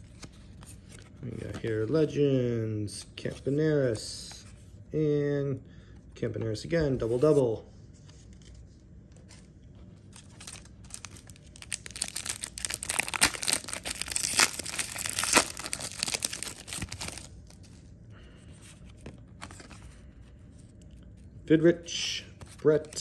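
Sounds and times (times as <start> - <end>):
plastic wrapper tearing and crinkling: 10.2 - 17.6.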